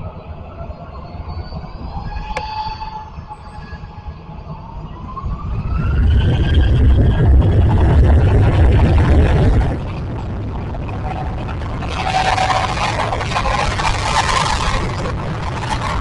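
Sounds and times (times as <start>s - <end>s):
jet engine whine: 0.0s - 16.0s
low engine rumble: 4.2s - 16.0s.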